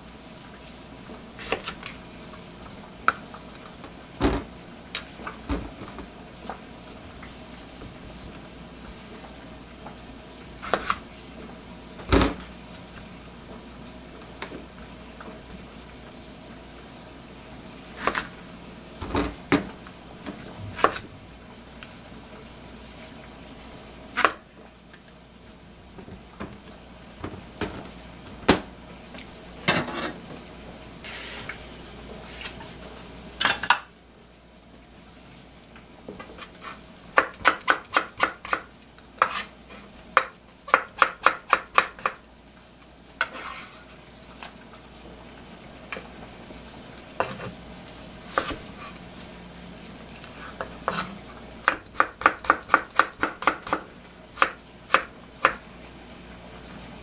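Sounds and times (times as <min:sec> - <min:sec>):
knife slicing on cutting board: 0:39.2 - 0:39.5, 0:43.2 - 0:43.8.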